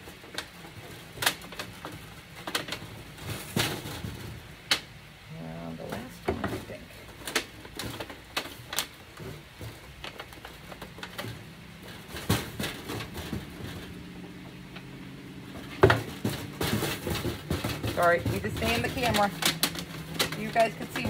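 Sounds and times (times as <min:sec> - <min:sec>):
aluminum sheet crinkling: 0:00.0 - 0:05.0, 0:05.8 - 0:21.0
knocks against wire cage: 0:10.4 - 0:21.0.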